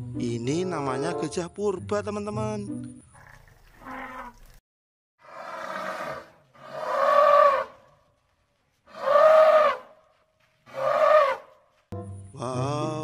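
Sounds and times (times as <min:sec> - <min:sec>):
elephants trumpeting: 0:05.3 - 0:07.8, 0:08.9 - 0:09.9, 0:10.7 - 0:11.5.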